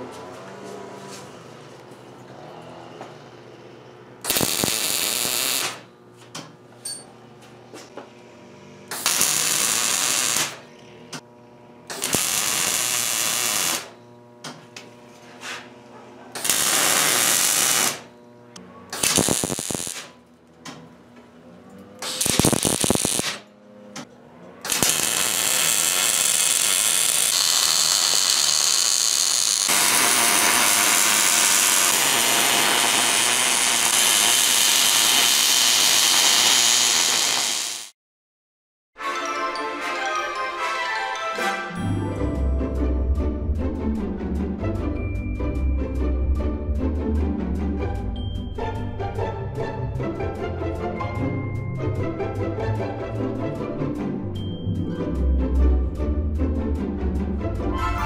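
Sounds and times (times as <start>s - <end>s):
welder arc buzzing: 4.2s - 5.9s, 8.2s - 15.0s, 16.4s - 20.2s, 22.0s - 23.5s, 24.6s - 38.0s.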